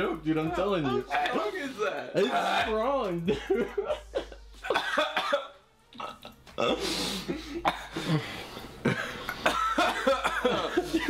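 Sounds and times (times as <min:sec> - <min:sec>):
man coughing: 0:03.4 - 0:08.2, 0:08.8 - 0:11.0
rough strained throat noises: 0:05.9 - 0:08.2.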